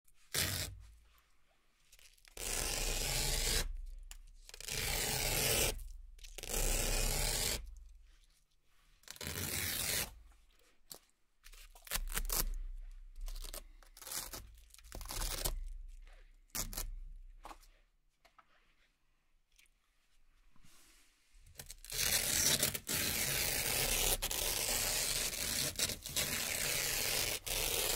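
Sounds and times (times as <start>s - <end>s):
velcro ripping: 0.3s - 0.8s, 2.0s - 7.8s, 9.0s - 10.2s, 11.5s - 12.6s, 13.2s - 15.8s, 16.5s - 17.0s, 21.6s - 27.9s.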